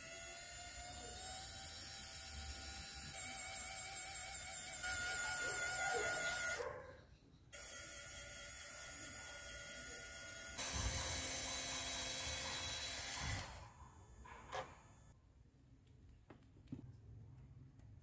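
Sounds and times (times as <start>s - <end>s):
small electric motor whining: 0.0s - 6.6s, 7.5s - 13.8s.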